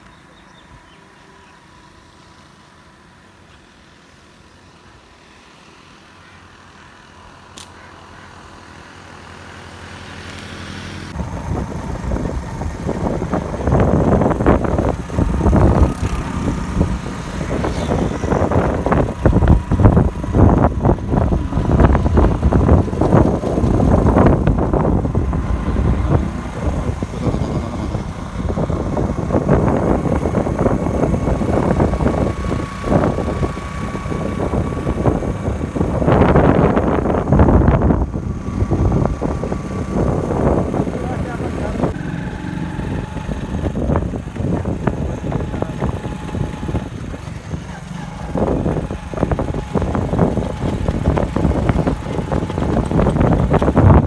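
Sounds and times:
vehicle engine and road rumble: 0.0s - 54.0s
wind buffeting microphone: 11.1s - 54.0s.

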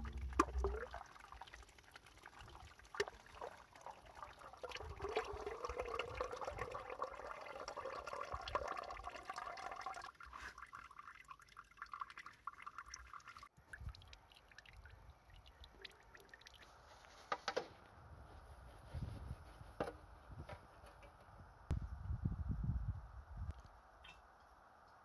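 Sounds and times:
oil draining into a basin: 0.0s - 16.7s.

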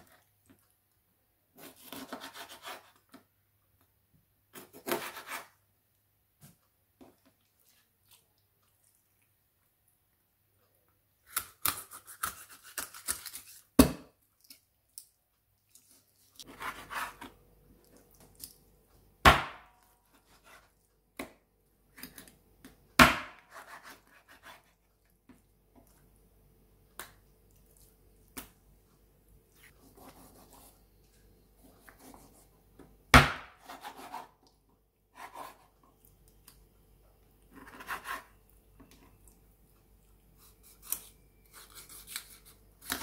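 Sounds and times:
knife cutting taps and scrapes: 4.5s - 5.5s.

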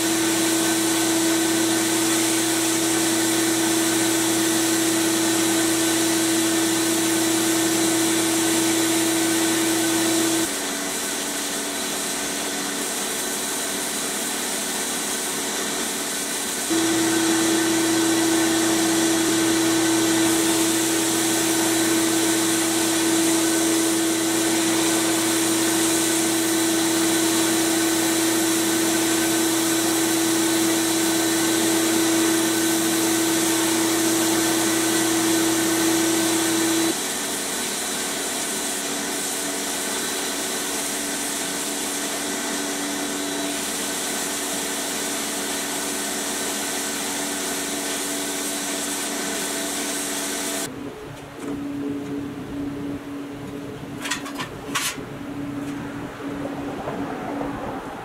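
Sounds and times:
loud steady hum: 0.0s - 11.5s, 16.4s - 37.8s, 50.3s - 58.0s
hiss of air and grit: 0.0s - 50.7s.

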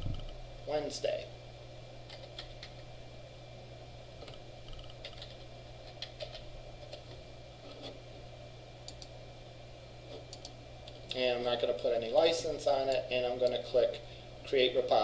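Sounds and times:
steady low hum: 0.0s - 15.0s
computer keyboard keystrokes: 2.1s - 2.8s, 4.2s - 7.0s.

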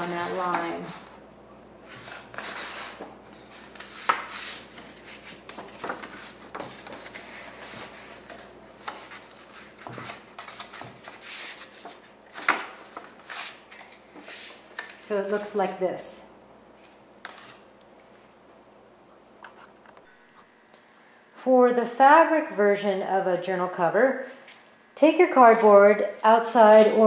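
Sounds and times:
paper rustling and rubbing: 1.8s - 14.6s, 26.6s - 27.0s.

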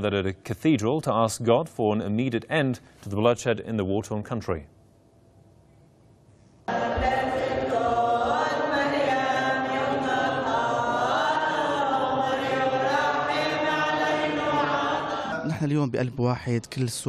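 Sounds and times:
congregation singing a chant: 6.7s - 15.6s.

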